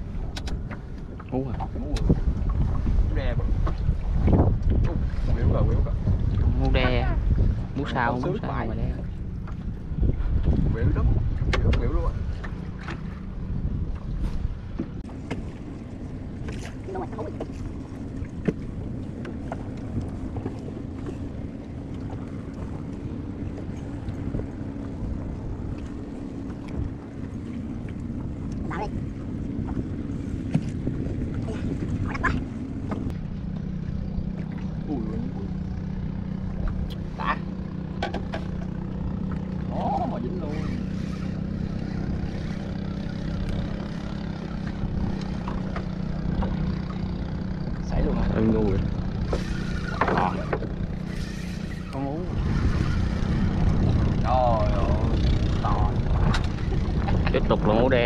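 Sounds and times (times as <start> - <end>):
boat engine humming: 0.0 - 58.0
low rumble of wind and water: 0.0 - 58.0.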